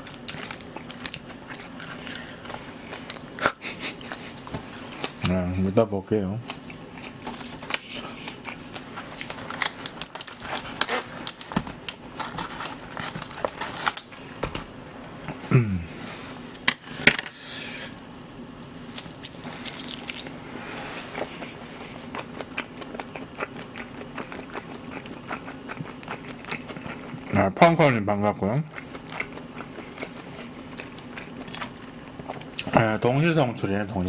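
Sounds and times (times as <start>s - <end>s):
wet chewing and lip smacks: 0.1s - 3.3s, 21.1s - 27.3s.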